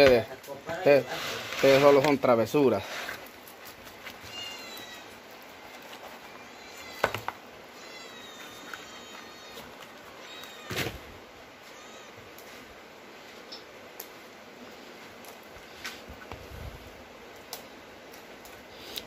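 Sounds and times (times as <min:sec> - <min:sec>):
cats meowing: 0:04.2 - 0:05.2, 0:06.3 - 0:12.4.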